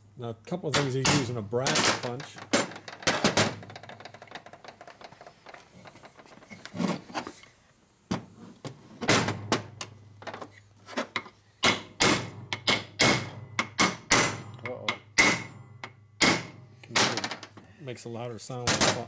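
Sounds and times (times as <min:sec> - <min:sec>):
hammer striking metal punch: 0:11.6 - 0:17.2.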